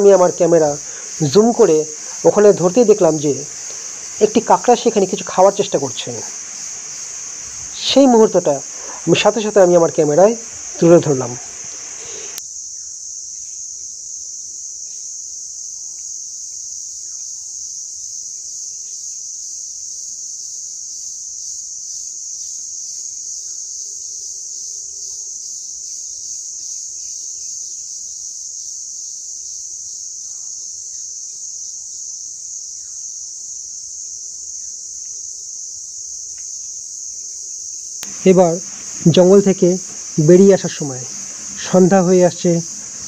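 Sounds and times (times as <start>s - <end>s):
crickets chirping: 0.0s - 43.0s
faint bird calls: 10.2s - 12.4s.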